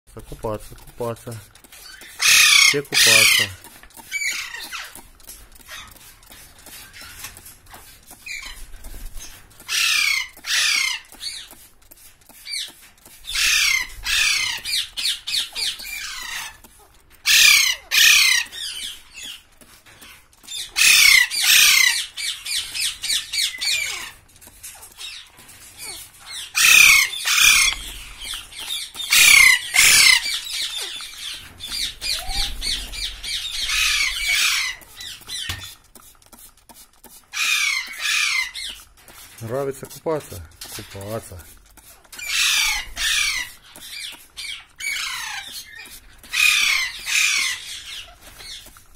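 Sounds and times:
parakeets screeching: 0:01.8 - 0:06.0, 0:08.2 - 0:11.6, 0:12.5 - 0:16.6, 0:17.2 - 0:19.4, 0:20.0 - 0:24.2, 0:24.8 - 0:35.8, 0:37.3 - 0:38.8, 0:42.2 - 0:48.7.

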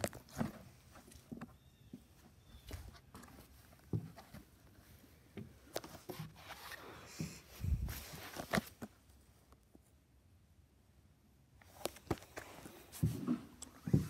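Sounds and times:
footsteps and scuffs: 0:05.7 - 0:08.9, 0:11.7 - 0:14.0.

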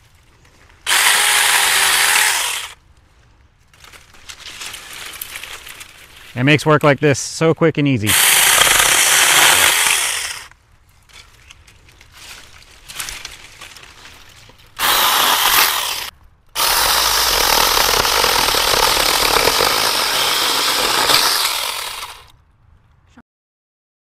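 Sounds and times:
branches rustling: 0:00.0 - 0:07.1, 0:08.1 - 0:22.4
electric chainsaw cutting: 0:00.9 - 0:02.8, 0:08.1 - 0:10.5, 0:14.8 - 0:22.3.

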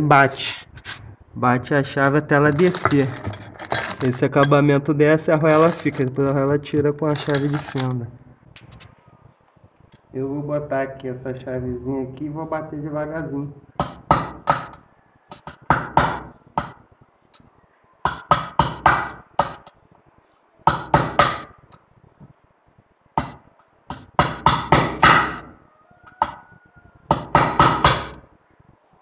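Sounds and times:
hammer tapping metal wrench: 0:13.8 - 0:16.8, 0:18.1 - 0:19.7, 0:23.2 - 0:25.4.

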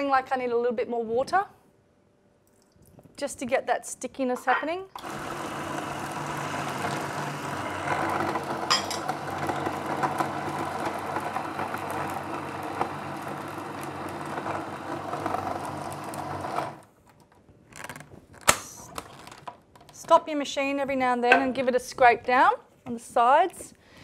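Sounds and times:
food processor running: 0:05.0 - 0:16.9.

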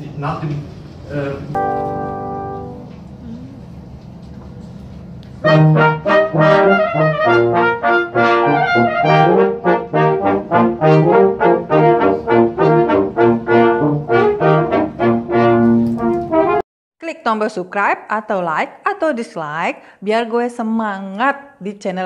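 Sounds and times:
brass ensemble playing lively tune: 0:01.5 - 0:02.9, 0:05.4 - 0:16.6
tuba bass line: 0:01.5 - 0:02.9, 0:05.4 - 0:16.6.

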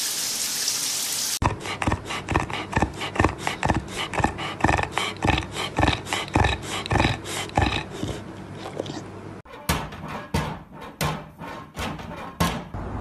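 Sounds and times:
dog grumbling: 0:01.6 - 0:09.2.

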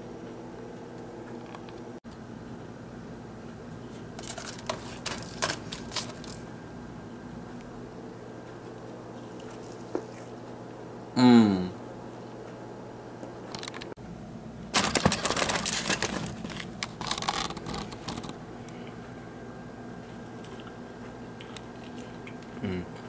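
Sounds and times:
low steady hum: 0:00.0 - 0:23.0
aluminium foil crinkling: 0:04.2 - 0:06.4, 0:09.3 - 0:10.3, 0:14.7 - 0:18.4.

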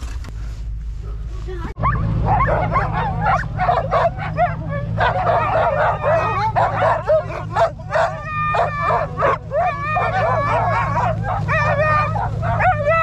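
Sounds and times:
sled dogs barking and yelping: 0:01.0 - 0:13.0.

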